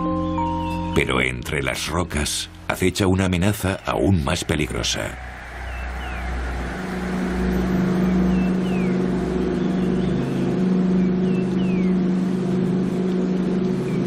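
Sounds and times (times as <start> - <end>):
bird chirping and whistling: 0.0 - 1.0, 5.6 - 6.4, 8.0 - 9.0, 11.0 - 12.0
low droning hum: 4.6 - 14.0.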